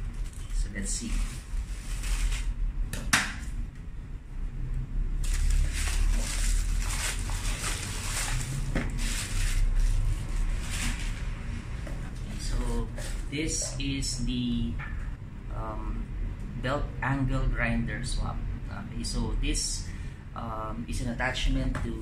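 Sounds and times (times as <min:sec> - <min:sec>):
plastic mailer bag rustling: 0:00.2 - 0:02.6, 0:05.2 - 0:11.3.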